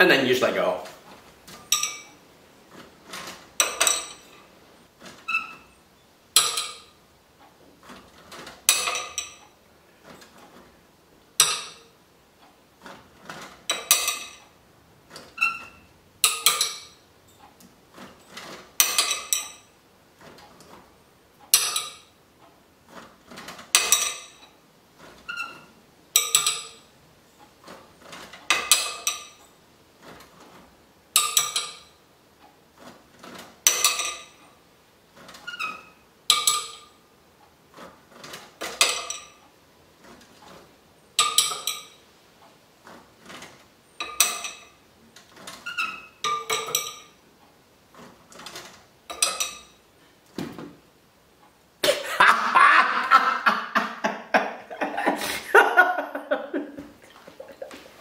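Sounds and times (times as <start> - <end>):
clock mechanism clinking and clattering: 0.4 - 50.9.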